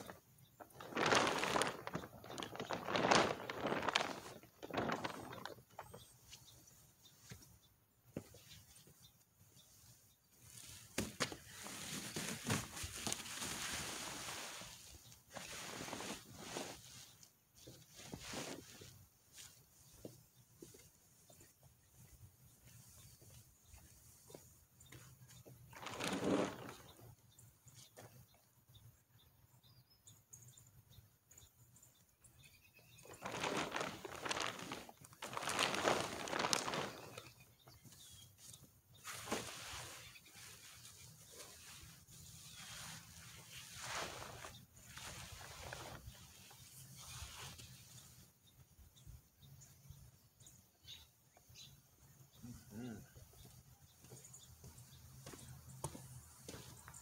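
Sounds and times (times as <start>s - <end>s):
fabric car cover rustling: 0.0s - 6.1s, 10.4s - 19.7s, 25.7s - 27.0s, 33.1s - 37.4s, 39.0s - 47.8s.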